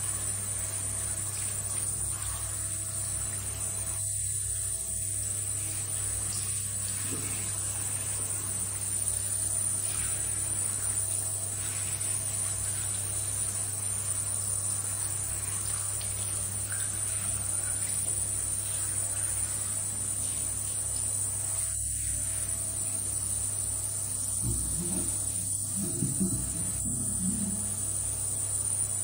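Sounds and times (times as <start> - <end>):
shower head spraying water: 5.0 - 28.4
high-pitched whine: 21.4 - 29.0
low hum: 24.2 - 28.3.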